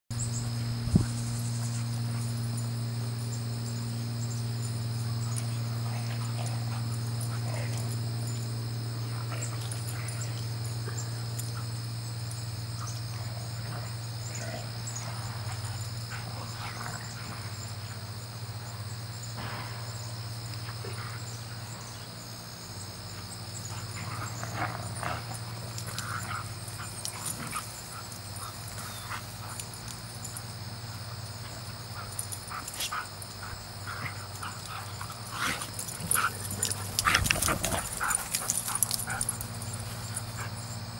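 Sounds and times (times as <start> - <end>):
steady low hum: 0.1 - 40.9.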